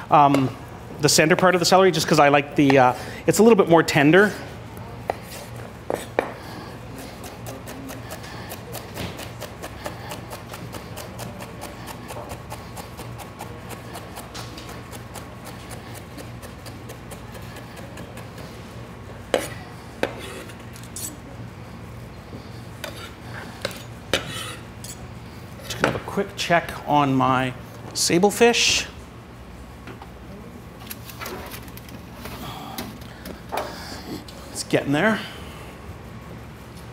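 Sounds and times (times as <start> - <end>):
knife chopping on wooden board: 7.2 - 18.3, 19.3 - 20.4.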